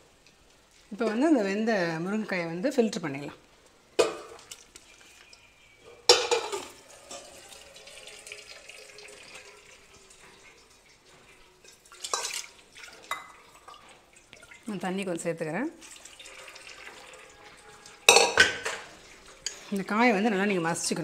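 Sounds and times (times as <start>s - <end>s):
liquid trickling and dripping: 3.4s - 5.5s, 6.6s - 15.1s, 15.8s - 20.6s
water splashing into colander: 6.1s - 14.8s, 15.8s - 19.7s.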